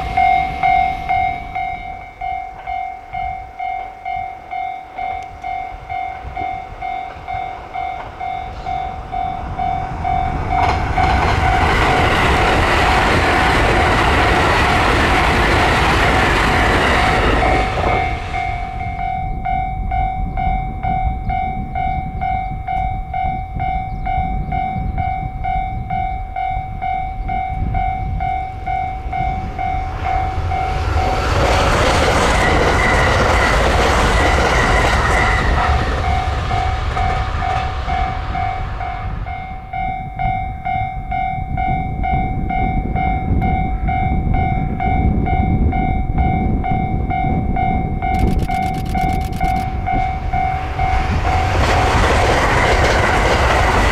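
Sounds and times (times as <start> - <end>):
level crossing bell ringing: 0.0 - 12.2
train passing with rushing rumble: 0.0 - 53.9.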